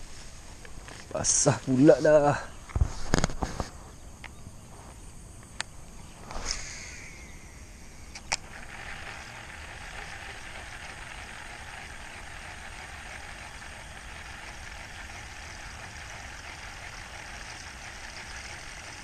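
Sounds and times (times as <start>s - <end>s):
fishing line swish: 6.2s - 8.1s
fishing reel whirring: 6.3s - 19.0s.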